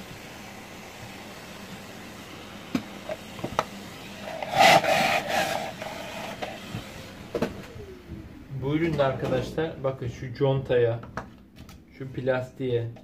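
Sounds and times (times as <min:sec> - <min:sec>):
plastic scraping rub: 0:04.2 - 0:06.7.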